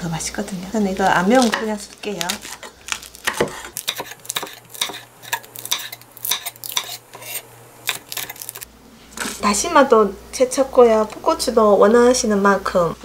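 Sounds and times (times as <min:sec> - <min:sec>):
knife chopping on wooden board: 0:01.4 - 0:08.6.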